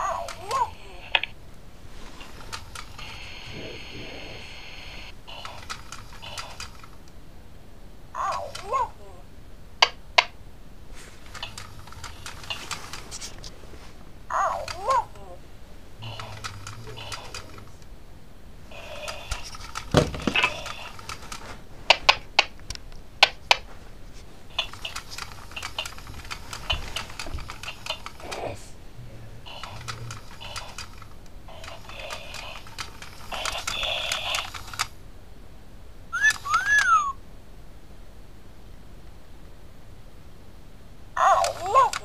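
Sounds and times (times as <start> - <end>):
hiss: 1.9 - 6.8
sharp clicks and knocks: 24.5 - 28.4
squeaky whistle: 36.2 - 37.2.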